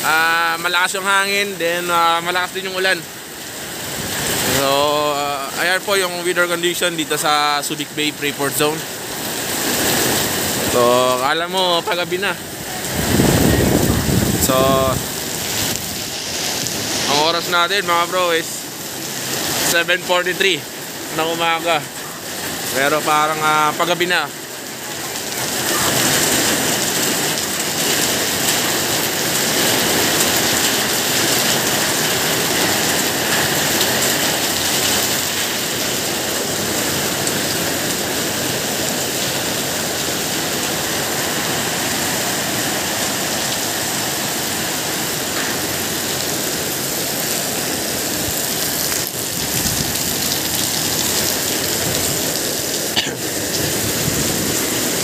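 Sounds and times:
heavy rain on pavement: 0.0 - 55.0
strong wind: 11.9 - 17.1, 45.6 - 55.0.

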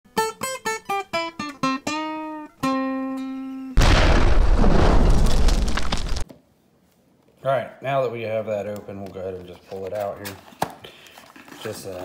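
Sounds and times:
rushing boom with heavy bass: 3.8 - 6.2.

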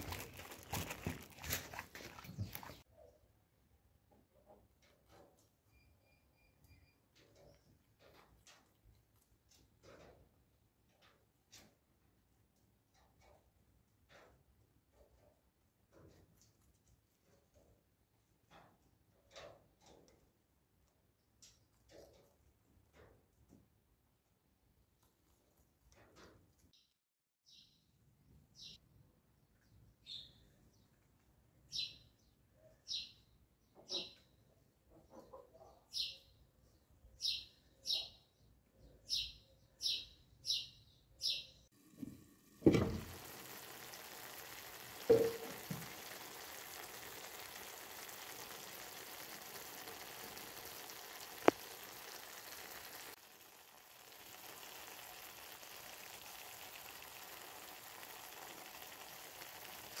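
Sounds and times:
small bird chirping: 29.6 - 31.0, 31.7 - 34.4, 35.2 - 41.7
food sizzling in a pot: 41.8 - 60.0
knock: 45.1 - 45.8.

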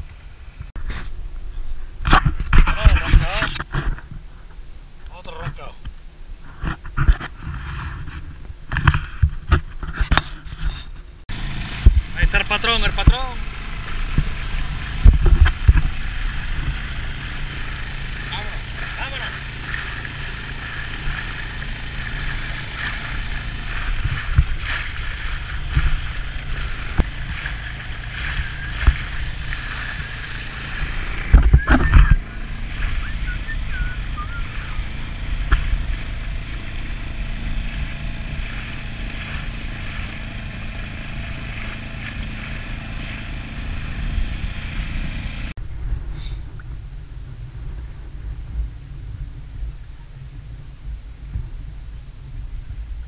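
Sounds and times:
wind and water rumble: 0.0 - 53.0
outboard motor running: 6.4 - 46.6
loud thumps: 22.8 - 33.8.

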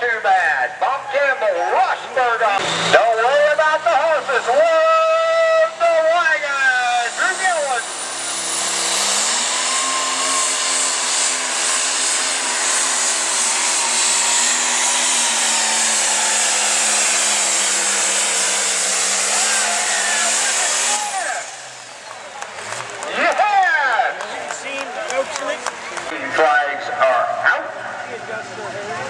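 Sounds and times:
diesel engine at full throttle: 0.0 - 29.0
turbo whine: 4.2 - 22.4.

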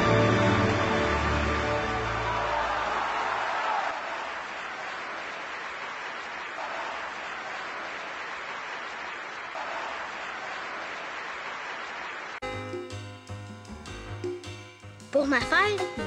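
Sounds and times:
audience applauding: 0.0 - 12.4.

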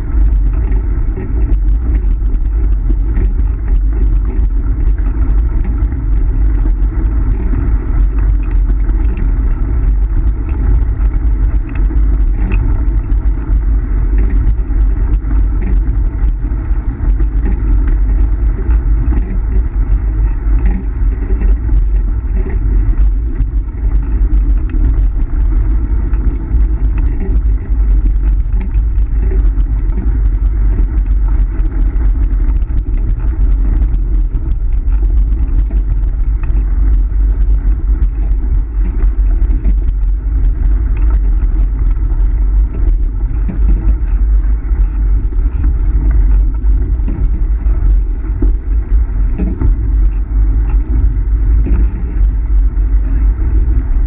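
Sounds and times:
scooter wheels rumbling on gravel: 0.0 - 54.0
wind buffeting microphone: 0.0 - 54.0.

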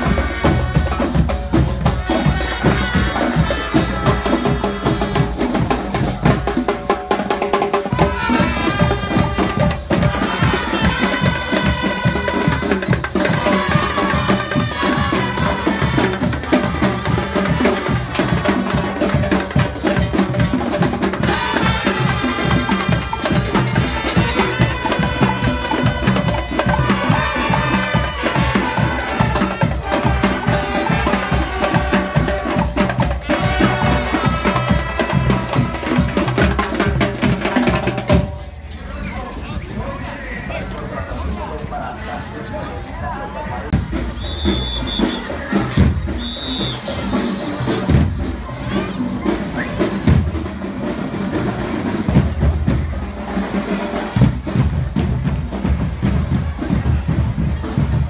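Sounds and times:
brass and glockenspiel melody: 0.0 - 6.6, 7.9 - 36.5
snare and bass drums: 0.0 - 38.8, 43.7 - 58.0.

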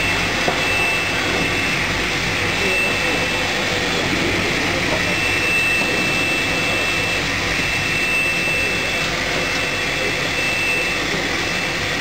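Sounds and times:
thin high whine: 0.0 - 12.0.

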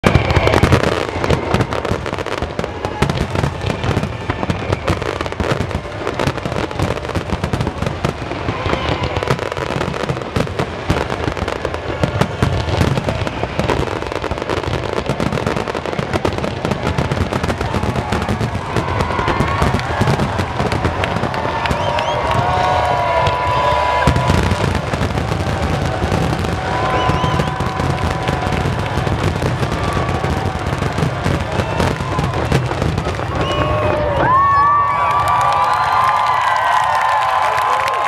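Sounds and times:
fireworks bangs and crackles: 0.0 - 38.0.

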